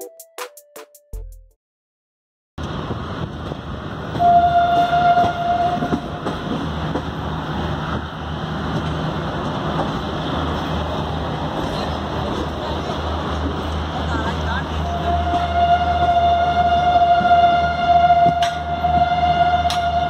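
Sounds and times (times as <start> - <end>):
low railway rumble: 2.6 - 20.0
train horn blast: 4.1 - 6.3, 14.8 - 20.0.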